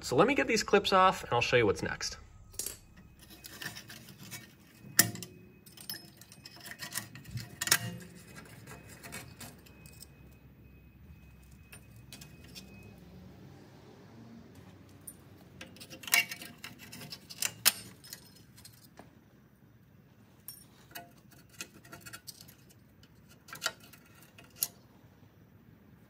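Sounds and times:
sharp metal clinks: 2.4 - 12.9
small metal clicks and scrapes: 2.6 - 10.4, 11.2 - 12.9, 14.6 - 19.0, 20.4 - 24.9.

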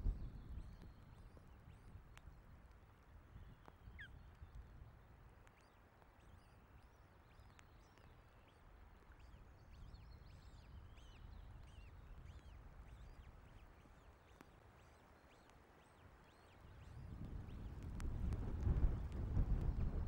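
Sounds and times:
wind buffeting microphone: 0.0 - 2.0, 16.8 - 20.0
faint bird chirps: 5.4 - 18.3.

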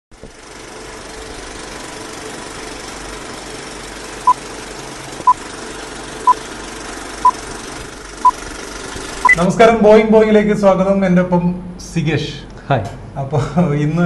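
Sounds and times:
film projector whir: 0.2 - 9.4.

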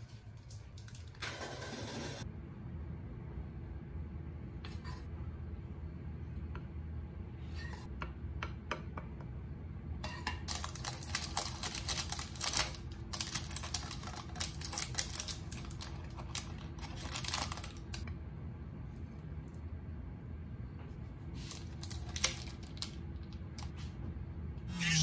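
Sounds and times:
crackling and clicking of food: 10.4 - 18.1, 21.6 - 23.7.

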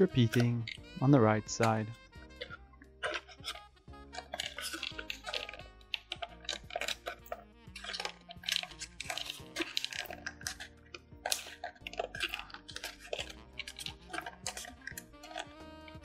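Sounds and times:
background music: 0.0 - 16.0
paper crackling and crinkling: 4.2 - 15.2.

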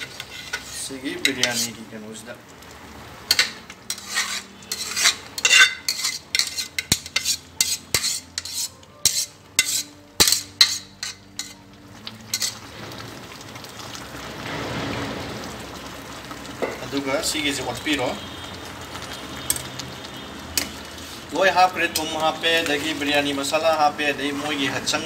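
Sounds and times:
metal spoon scraping and clinking: 0.0 - 1.8, 3.3 - 11.7, 12.3 - 12.6, 21.9 - 25.0.

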